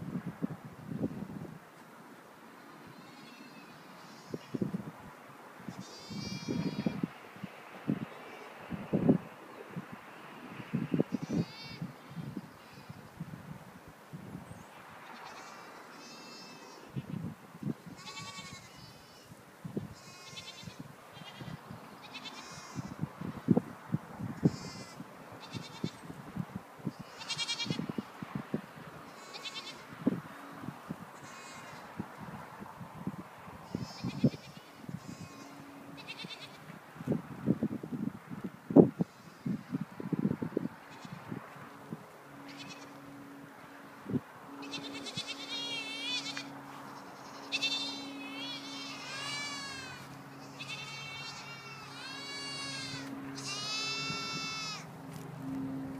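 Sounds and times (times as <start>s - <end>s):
goats bleating: 5.7s - 7.0s, 18.0s - 19.2s, 20.0s - 23.0s, 27.1s - 27.8s, 29.2s - 29.8s, 31.2s - 31.9s, 33.7s - 36.7s, 42.4s - 43.0s, 44.6s - 54.9s.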